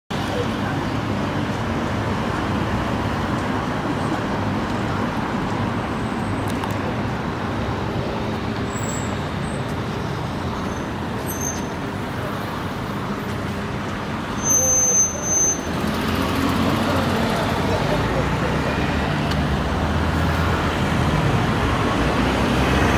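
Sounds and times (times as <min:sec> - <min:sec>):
road traffic: 0:00.1 - 0:22.9
high-pitched squeal: 0:14.2 - 0:16.3.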